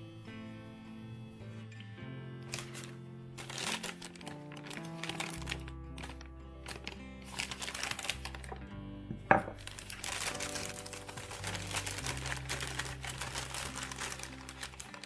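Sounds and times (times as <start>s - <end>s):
paper bag crinkling: 2.4s - 8.6s, 9.5s - 15.0s
ceramic plate set on wooden table: 8.5s - 9.7s.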